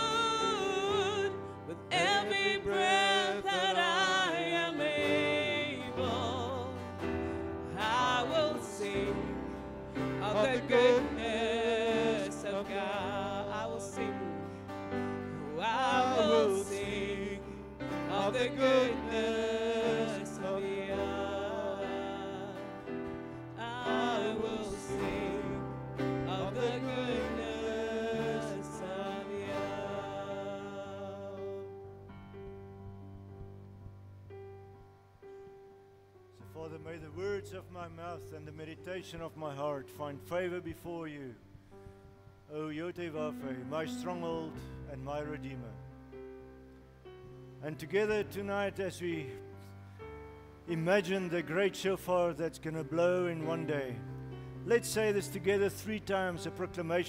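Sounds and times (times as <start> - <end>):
person singing: 0.0 - 31.8
sustained keyboard chords: 0.0 - 57.0.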